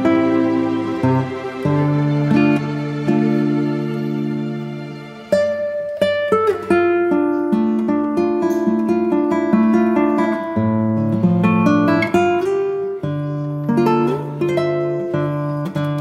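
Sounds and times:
acoustic guitar plucked notes: 0:00.0 - 0:16.0.

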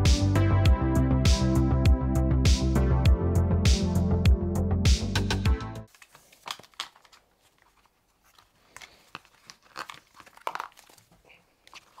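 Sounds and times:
respirator mask being handled: 0:05.9 - 0:12.0.

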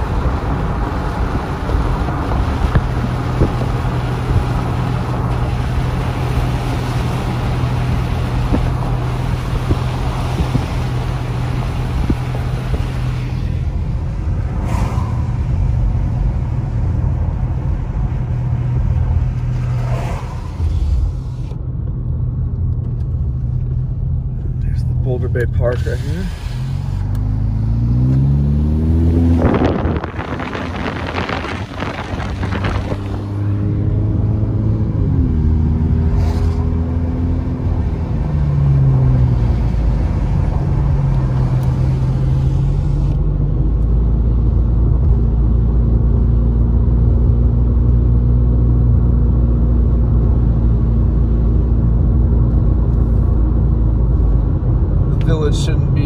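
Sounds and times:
tyres on wet pavement: 0:00.0 - 0:21.6, 0:25.5 - 0:43.2
car engine: 0:00.0 - 0:56.0.

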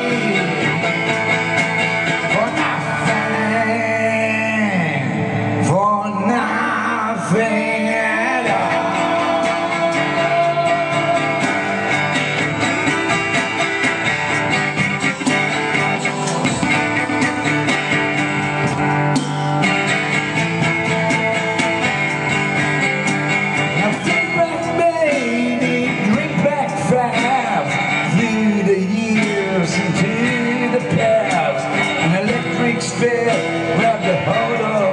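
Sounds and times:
man and woman singing: 0:00.0 - 0:00.8, 0:02.3 - 0:05.0, 0:05.7 - 0:11.9, 0:23.8 - 0:34.9
acoustic guitar strumming: 0:00.0 - 0:34.9.

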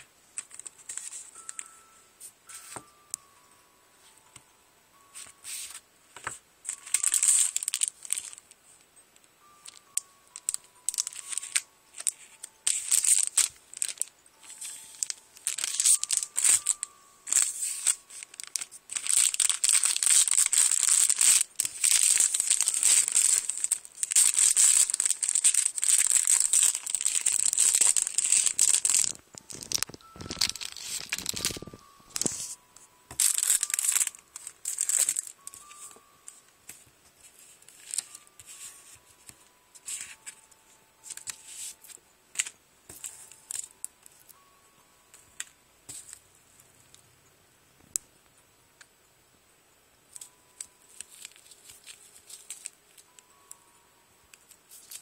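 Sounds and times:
cellophane crinkling: 0:00.0 - 0:03.1, 0:05.0 - 0:08.6, 0:09.4 - 0:36.4, 0:37.2 - 0:44.6, 0:50.1 - 0:53.7, 0:54.3 - 0:55.0.

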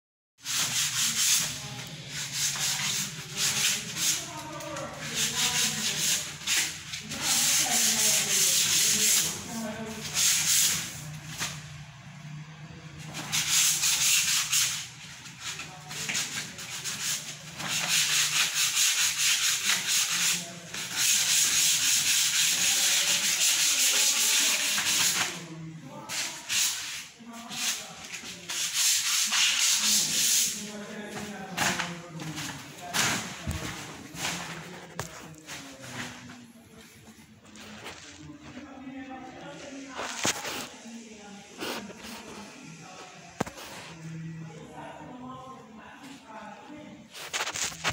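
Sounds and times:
sandpaper rubbing on wood: 0:00.4 - 0:11.6, 0:13.1 - 0:25.4, 0:26.0 - 0:30.7, 0:41.5 - 0:42.6, 0:47.1 - 0:47.9.

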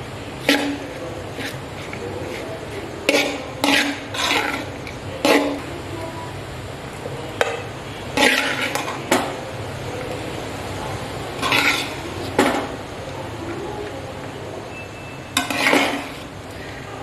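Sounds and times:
spoon scraping metal pot: 0:00.4 - 0:05.6, 0:08.2 - 0:09.0, 0:11.4 - 0:12.4, 0:15.4 - 0:16.3.

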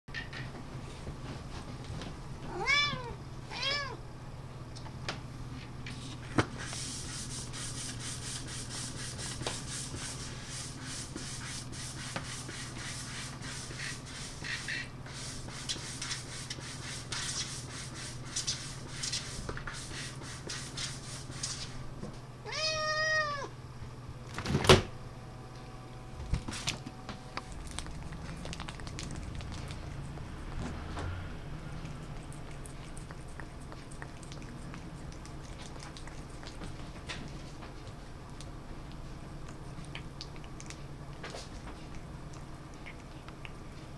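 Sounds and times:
cat meowing: 0:02.5 - 0:04.0, 0:22.4 - 0:23.5.

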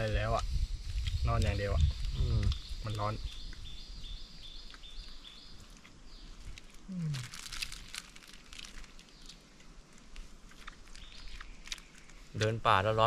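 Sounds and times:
crisp crinkling clicks: 0:04.6 - 0:12.6.

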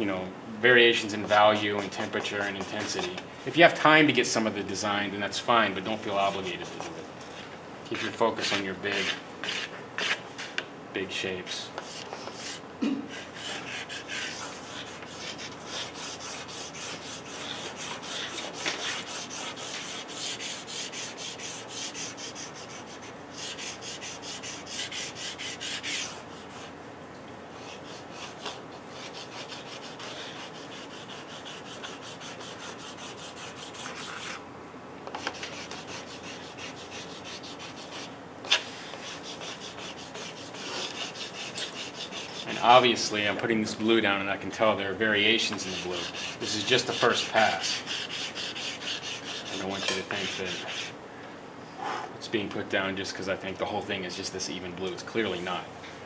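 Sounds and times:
pastel scratching across paper: 0:06.2 - 0:06.9, 0:08.0 - 0:10.2, 0:11.8 - 0:26.7, 0:27.6 - 0:34.4, 0:35.2 - 0:42.6, 0:45.4 - 0:50.9.

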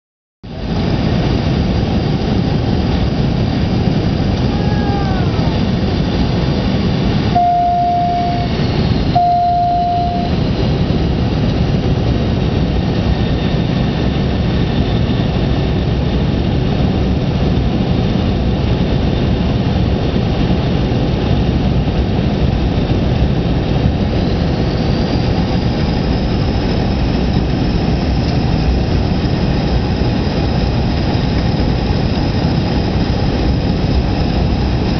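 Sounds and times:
airliner cabin roar: 0:00.5 - 0:34.9
cabin chime tones: 0:07.4 - 0:08.6.

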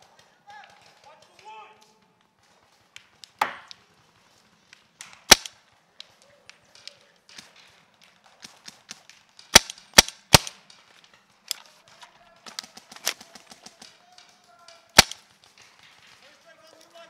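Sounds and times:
paintball marker firing pops: 0:02.9 - 0:03.8, 0:05.0 - 0:10.8, 0:11.5 - 0:16.2
faint pops and clicks: 0:04.7 - 0:16.2.

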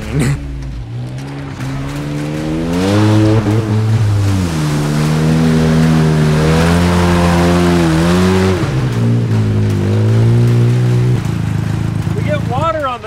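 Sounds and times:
small truck engine running: 0:00.0 - 0:13.0.

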